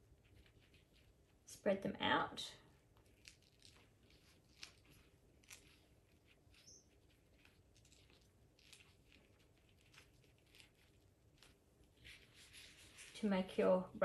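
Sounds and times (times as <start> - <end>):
metallic paper crinkling: 2.9 - 13.4.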